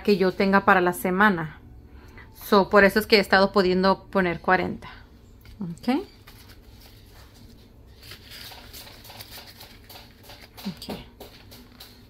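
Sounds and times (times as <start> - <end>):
plastic and paper rustling: 5.4 - 12.0.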